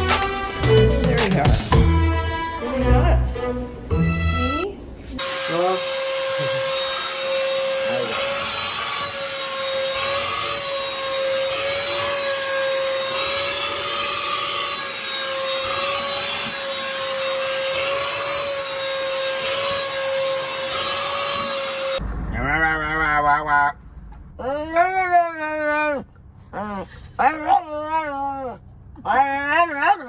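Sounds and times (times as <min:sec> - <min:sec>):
handheld vacuum cleaner running: 0:05.2 - 0:22.0.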